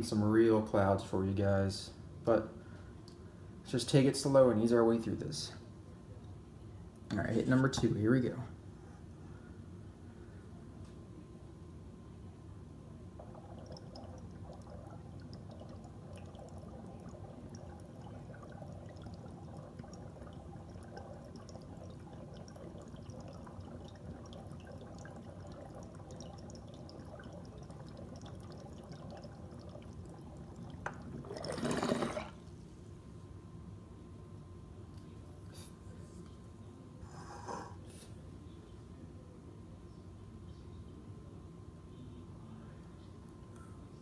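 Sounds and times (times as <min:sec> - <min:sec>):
water bubbling in bong: 0:13.2 - 0:32.4.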